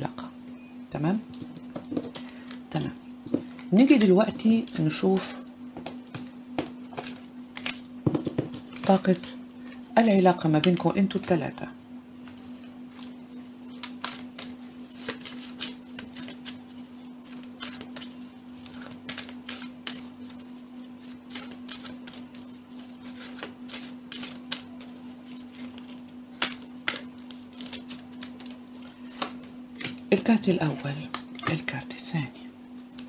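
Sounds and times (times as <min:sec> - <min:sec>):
steady low hum: 0:00.0 - 0:33.0
cards being shuffled: 0:05.8 - 0:11.4, 0:12.2 - 0:33.0.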